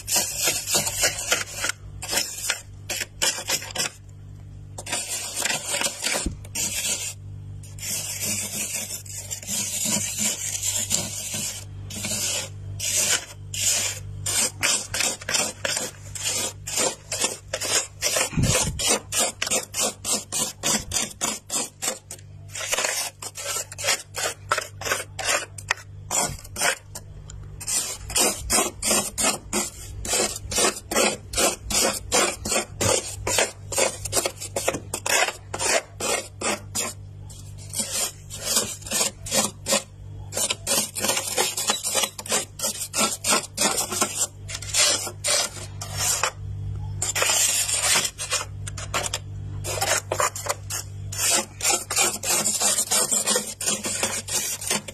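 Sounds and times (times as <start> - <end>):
frost scraped off freezer wall: 0.0 - 54.9.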